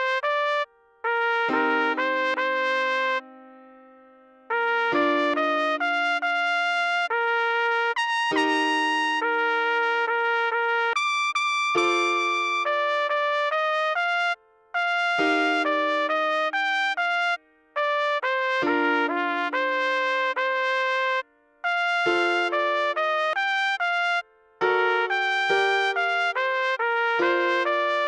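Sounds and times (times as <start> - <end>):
trumpet playing slow melody: 0.0 - 3.8, 4.4 - 28.0
piano chords: 1.5 - 7.2, 8.3 - 9.5, 11.8 - 13.9, 15.2 - 17.2, 18.4 - 21.2, 22.0 - 23.8, 24.5 - 28.0.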